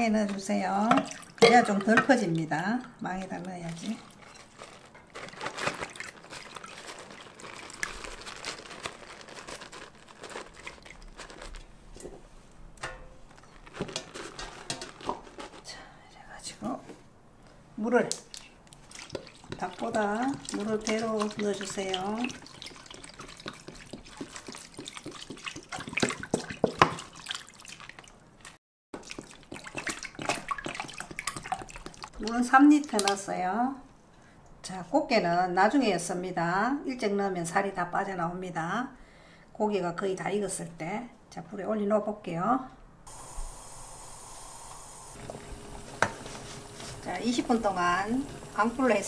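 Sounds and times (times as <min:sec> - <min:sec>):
plastic bag crinkling: 0:04.0 - 0:11.8, 0:13.4 - 0:15.7
water pouring into a pot: 0:18.9 - 0:28.0, 0:43.1 - 0:49.0.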